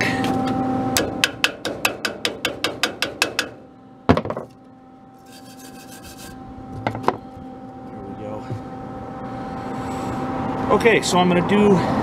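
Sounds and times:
chipping hammer tapping metal: 1.0s - 4.4s
wire brush scrubbing metal: 5.2s - 6.4s.

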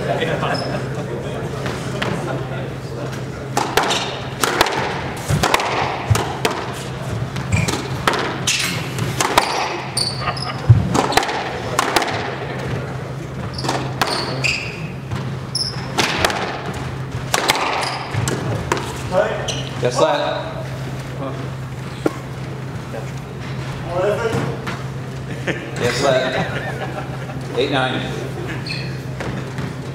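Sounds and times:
steady low hum: 0.0s - 29.9s
shoes squeaking on court floor: 0.4s - 0.9s, 6.0s - 11.6s, 12.2s - 23.7s, 28.4s - 29.9s
squash ball hits: 3.6s - 10.0s, 10.7s - 12.9s, 13.5s - 19.0s.

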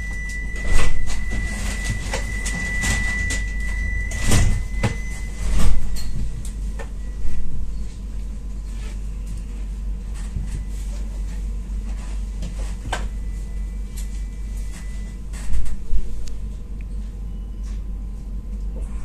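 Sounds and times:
high door warning beep: 0.0s - 7.8s, 13.1s - 15.6s.

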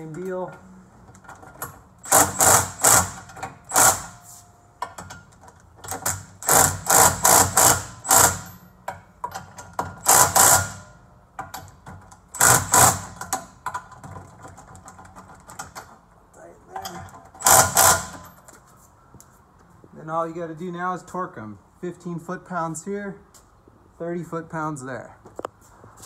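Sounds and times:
cordless driver running bolts: 1.2s - 4.2s, 5.0s - 8.6s, 9.2s - 10.8s, 11.4s - 15.9s, 16.8s - 18.4s.

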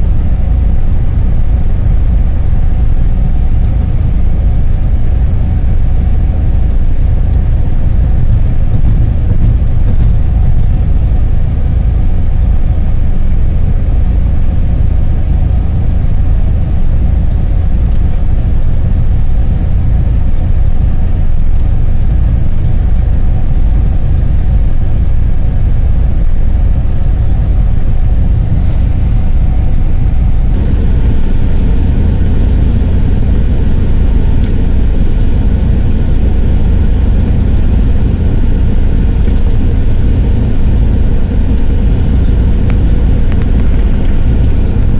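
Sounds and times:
road and engine rumble in vehicle: 0.0s - 44.9s.

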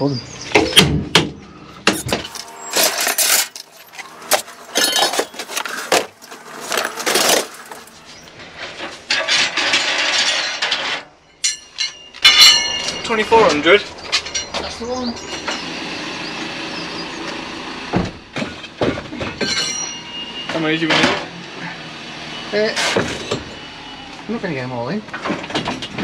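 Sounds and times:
metal tools clattering: 1.9s - 15.7s, 18.4s - 21.3s
metal piece clinking and ringing: 2.0s - 5.5s, 11.2s - 13.5s, 14.1s - 15.7s, 19.4s - 20.6s.

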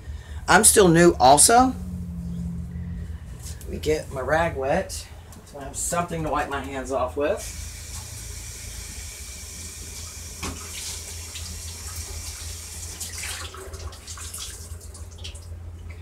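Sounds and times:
water running from a tap: 7.4s - 15.5s.

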